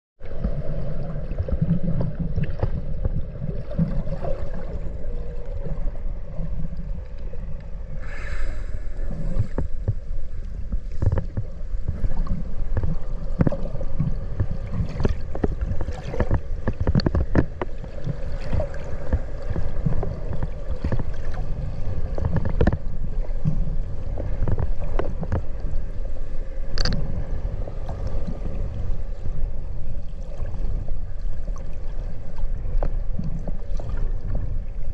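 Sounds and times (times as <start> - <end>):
rumbling water noise: 0.2 - 34.9
underwater low hum: 0.2 - 34.9
clicks and crackles: 9.3 - 21.5, 22.1 - 23.6, 26.6 - 27.1.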